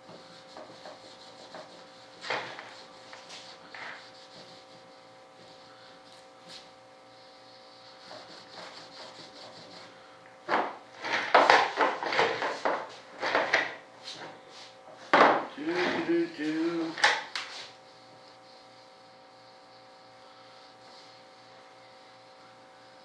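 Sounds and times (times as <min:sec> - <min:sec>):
wax rubbed by hand: 0:00.0 - 0:10.0, 0:15.6 - 0:23.0.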